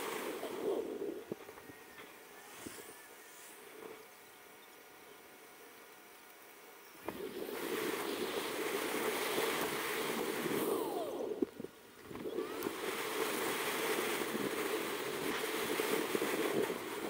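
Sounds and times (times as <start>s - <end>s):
wind on microphone: 0.0s - 3.1s, 7.0s - 17.0s.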